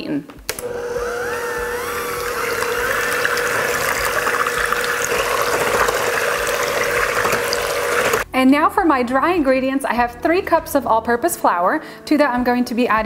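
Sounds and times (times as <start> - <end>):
electric hand mixer humming: 0.5 - 8.3
batter sloshing: 2.2 - 8.3.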